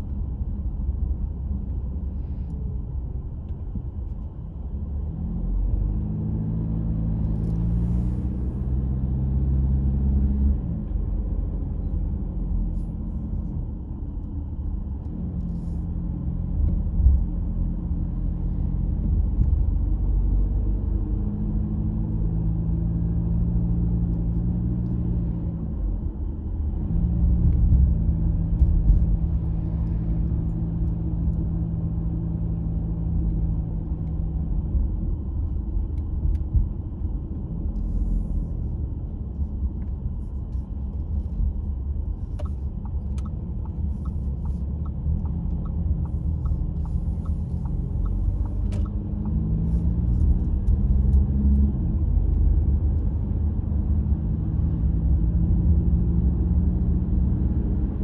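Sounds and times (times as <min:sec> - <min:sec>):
car engine and road rumble: 0:00.0 - 0:58.0
engine hum: 0:00.0 - 0:58.0
light evenly spaced ticks: 0:42.3 - 0:49.4.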